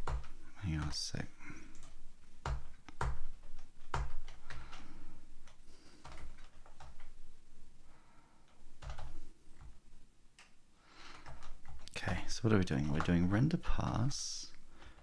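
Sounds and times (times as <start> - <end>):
computer keyboard keystrokes: 0.0 - 1.0, 1.7 - 7.2, 8.4 - 9.8, 11.1 - 13.4.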